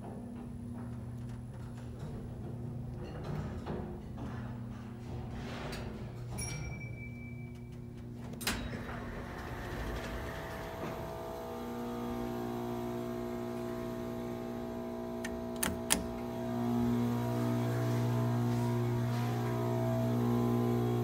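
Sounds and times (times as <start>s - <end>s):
lift machinery humming: 7.7s - 21.0s.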